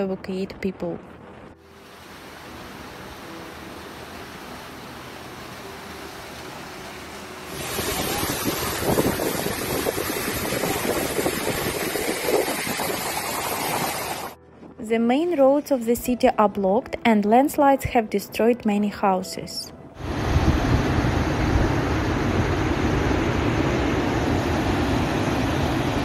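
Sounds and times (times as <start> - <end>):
fast-flowing floodwater: 1.6 - 14.4
wind buffeting microphone: 7.6 - 14.8, 20.0 - 26.0.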